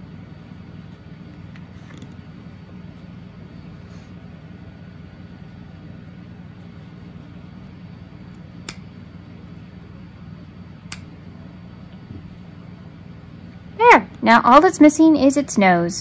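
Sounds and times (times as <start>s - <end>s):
steady low hum: 0.0s - 16.0s
scissors snipping yarn: 8.3s - 8.8s, 10.9s - 11.1s.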